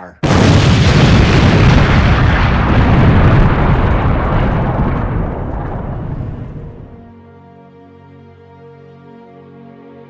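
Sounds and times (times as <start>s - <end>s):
slow sad instrumental music: 6.9s - 10.0s.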